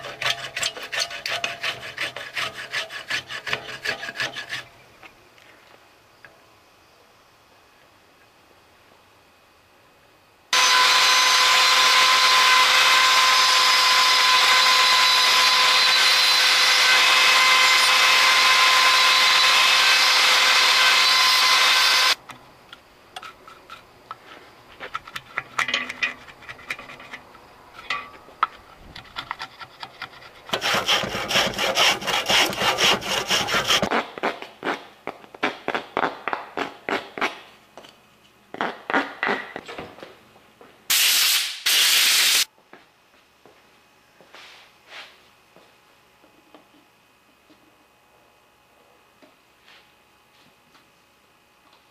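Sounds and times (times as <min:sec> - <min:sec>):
hand filing wood: 0:00.0 - 0:04.7, 0:29.4 - 0:33.9
power tool running on wood: 0:10.6 - 0:22.2.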